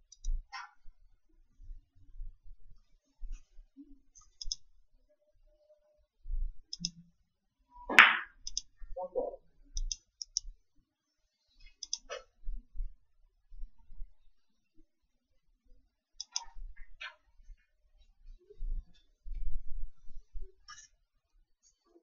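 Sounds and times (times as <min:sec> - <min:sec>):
billiard balls clicking: 0:07.9 - 0:08.4.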